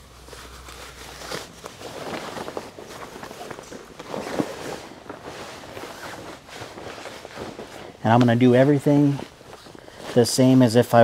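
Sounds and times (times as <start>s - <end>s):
wader fabric rustling: 0.0s - 11.0s
shuffling feet: 0.1s - 11.0s.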